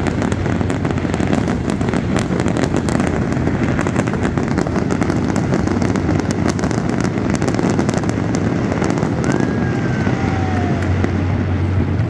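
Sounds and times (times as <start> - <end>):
fireworks rumble: 0.0 - 12.0
sharp fireworks pops: 0.0 - 12.0.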